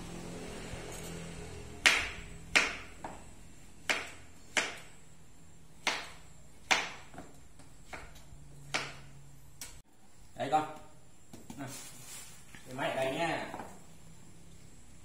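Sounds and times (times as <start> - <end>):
knife chopping on wooden board: 1.8 - 5.0, 5.8 - 9.1.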